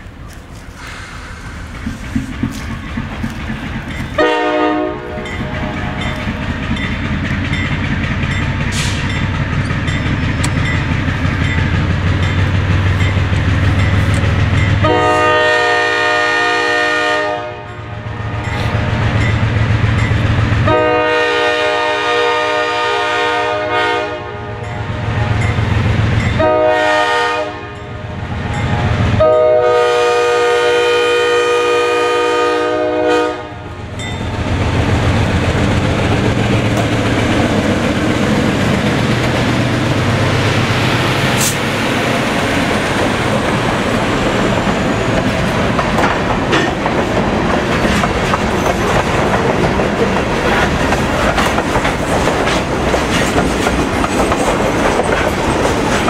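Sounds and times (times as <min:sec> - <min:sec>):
diesel locomotives passing: 0:00.0 - 0:56.0
train wheels clacking on rails: 0:00.6 - 0:17.0, 0:17.6 - 0:22.5, 0:32.8 - 0:56.0
locomotive horn blasts: 0:04.2 - 0:06.1, 0:14.8 - 0:18.7, 0:20.6 - 0:25.1, 0:26.4 - 0:28.2, 0:29.2 - 0:33.7.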